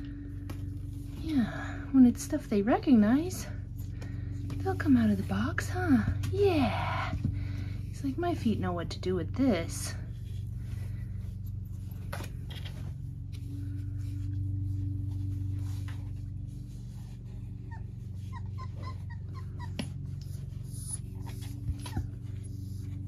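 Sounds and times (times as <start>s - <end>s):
steady low hum: 0.0s - 23.0s
puppies squeaking and whimpering: 17.6s - 23.0s.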